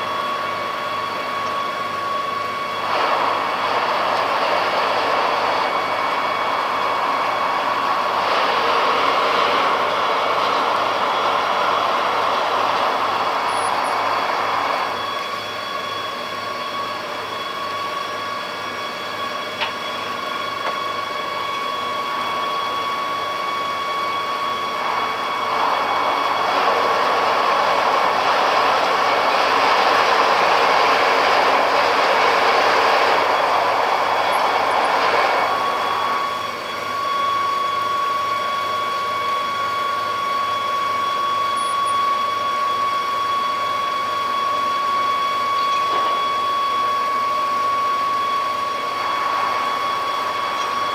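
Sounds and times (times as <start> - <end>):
ship machinery whining: 0.0 - 50.9
rushing noise: 24.8 - 36.4.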